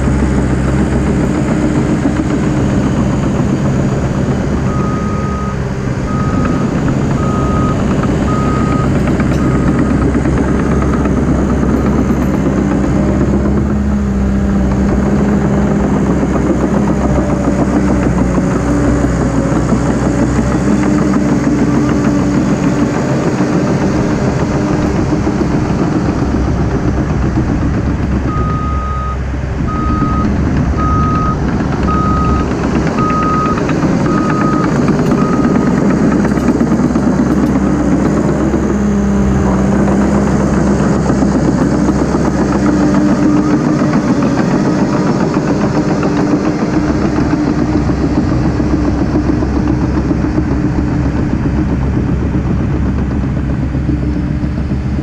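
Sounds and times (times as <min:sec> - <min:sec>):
bulldozer diesel engine: 0:00.0 - 0:55.0
reversing alarm beeping: 0:04.6 - 0:11.3, 0:28.3 - 0:35.9.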